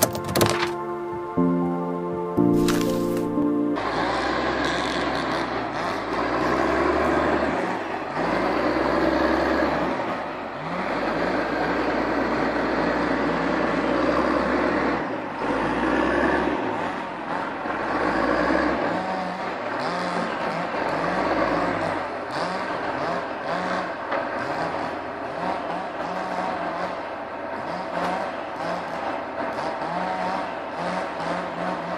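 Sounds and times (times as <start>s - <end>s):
diesel engine under load: 0.0s - 31.9s.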